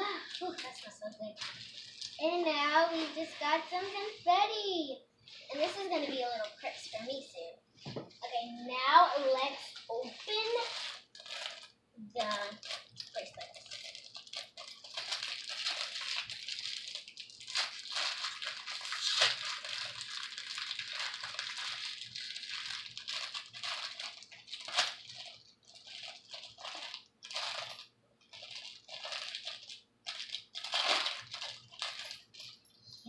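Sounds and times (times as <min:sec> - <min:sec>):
plastic bag crinkling: 0:00.0 - 0:04.2, 0:05.3 - 0:07.5, 0:08.2 - 0:32.9.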